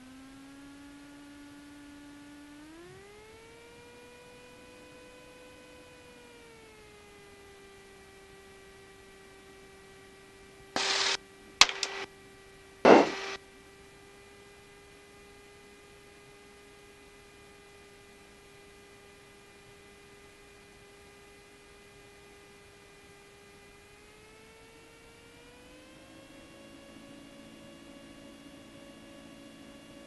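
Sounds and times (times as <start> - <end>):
static bursts: 10.8 - 12.1, 12.9 - 13.4
intercom electrical hum: 10.8 - 13.4.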